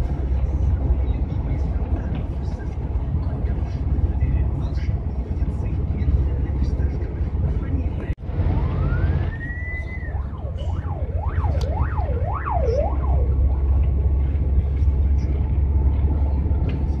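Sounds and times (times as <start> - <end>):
engine and road drone: 0.0 - 17.0
siren wailing: 8.3 - 14.2.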